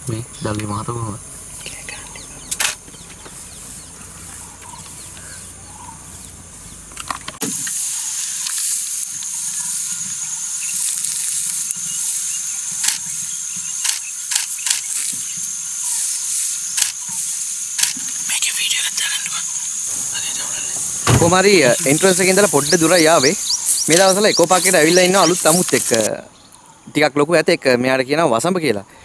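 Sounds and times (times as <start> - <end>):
high-pitched insect drone: 0.0 - 26.2.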